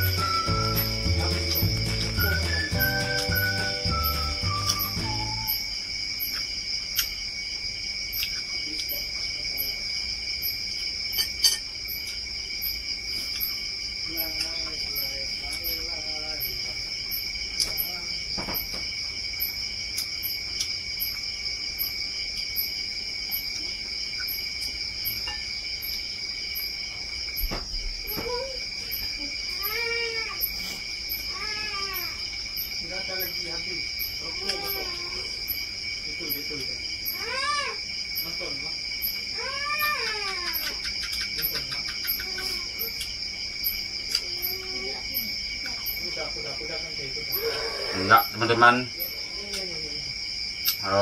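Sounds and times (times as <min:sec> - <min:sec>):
high chirp: 0:00.0 - 0:05.8
insects trilling: 0:00.0 - 0:51.0
cat meowing: 0:37.1 - 0:37.8, 0:39.4 - 0:40.7.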